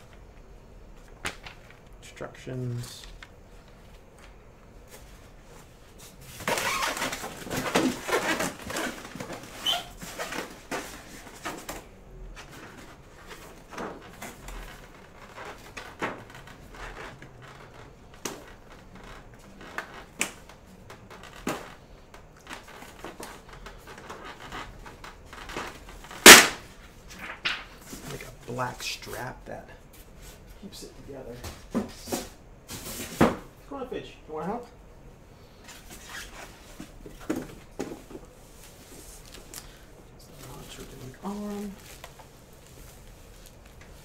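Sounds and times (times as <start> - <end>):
cardboard rustling and scraping: 4.8 - 28.4, 31.3 - 33.5.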